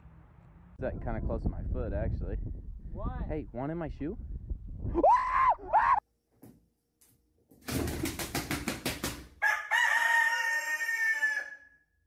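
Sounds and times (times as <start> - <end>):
rooster flapping wings: 7.6 - 9.4
rooster crowing: 9.4 - 11.9.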